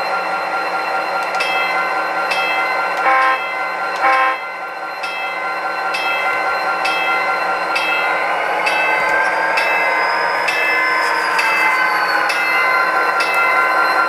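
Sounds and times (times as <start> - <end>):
model train horn blasts: 3.0 - 4.5.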